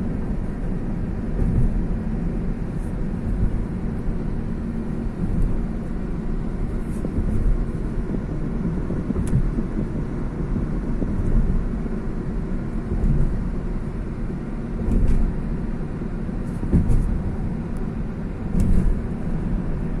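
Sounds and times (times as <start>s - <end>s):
car tyres and engine rumble: 0.0s - 20.0s
car bumps: 1.2s - 2.2s, 6.9s - 8.2s, 12.8s - 13.7s, 14.8s - 15.4s, 16.4s - 17.5s, 18.4s - 19.7s.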